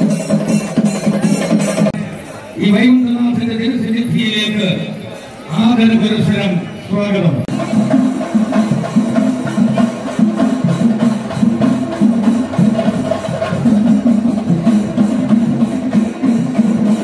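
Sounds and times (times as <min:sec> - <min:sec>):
fast drum rhythm: 0:00.0 - 0:02.2, 0:07.4 - 0:17.0.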